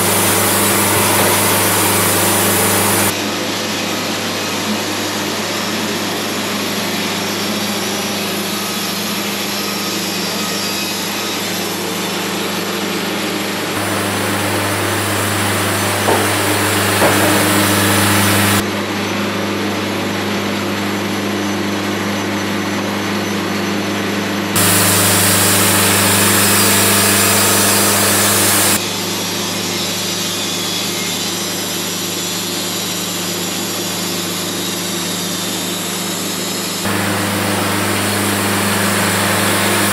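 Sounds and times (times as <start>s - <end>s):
band sawmill cutting log: 0.0s - 3.1s, 13.7s - 18.6s, 24.6s - 28.8s, 36.9s - 39.9s.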